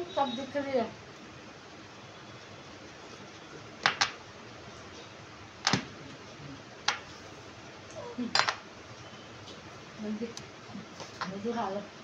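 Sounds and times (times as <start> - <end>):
cups knocking on glass table: 3.8 - 4.2, 8.4 - 8.6.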